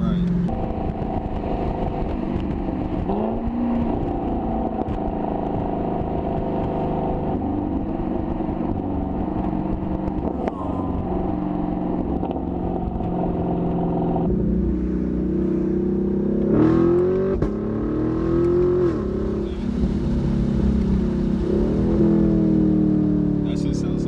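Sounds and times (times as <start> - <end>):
car exhaust rumbling: 0.0 - 24.0.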